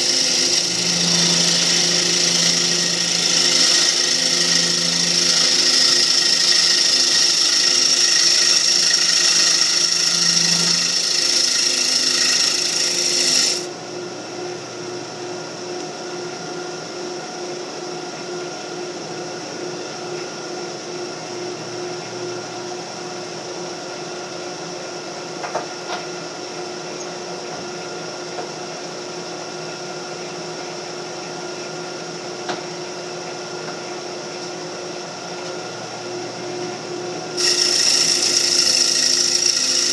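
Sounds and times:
lathe tool hissing on wood: 0.0s - 13.7s, 37.4s - 39.9s
lathe motor humming: 0.0s - 13.8s, 36.1s - 39.9s.

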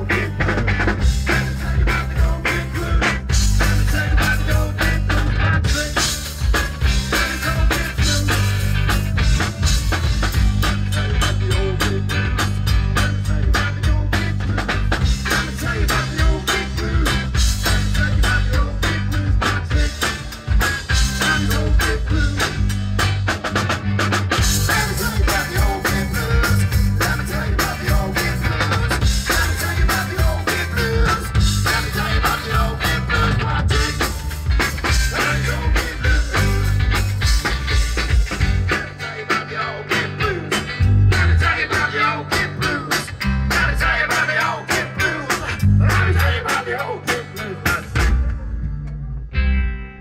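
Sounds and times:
live band music: 0.0s - 50.0s.

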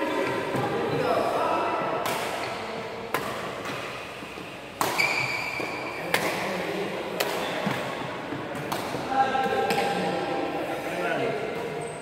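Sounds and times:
rackets striking shuttlecock: 1.9s - 4.0s, 4.8s - 6.5s, 7.2s - 10.1s.

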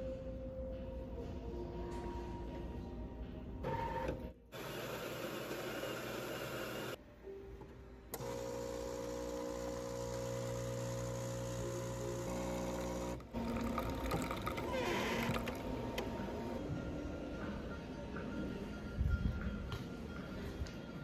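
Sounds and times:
coffee machine mechanical hum: 3.6s - 7.0s, 7.6s - 16.6s
coffee machine dispensing hiss: 4.6s - 7.0s.

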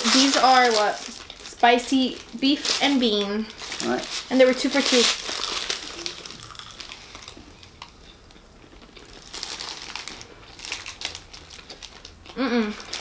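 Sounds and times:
paper wrappers crinkling: 0.0s - 7.9s, 8.7s - 13.0s
biting and chewing food: 4.8s - 13.0s.

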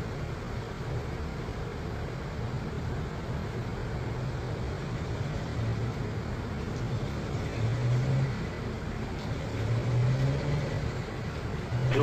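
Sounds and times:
distant jet engines running: 10.5s - 12.0s.

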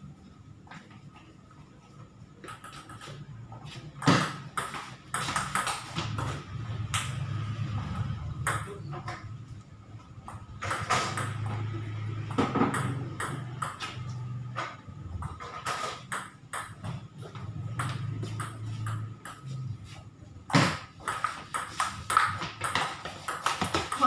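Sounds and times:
table tennis ball bouncing: 2.4s - 3.2s, 4.0s - 9.3s, 10.2s - 19.6s, 20.5s - 24.0s
table tennis bat hits: 20.5s - 24.0s.

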